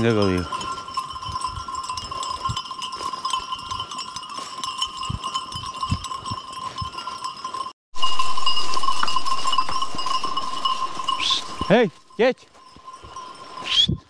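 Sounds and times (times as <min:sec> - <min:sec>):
sheep bells clanking: 0:00.0 - 0:14.0.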